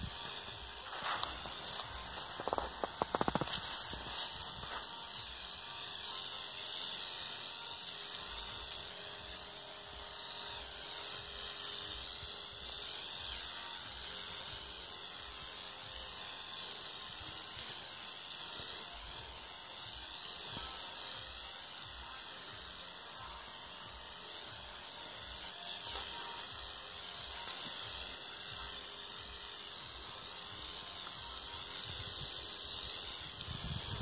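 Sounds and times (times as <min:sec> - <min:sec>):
lance spraying: 0:00.0 - 0:34.0
sprayer motor buzzing: 0:00.0 - 0:34.0.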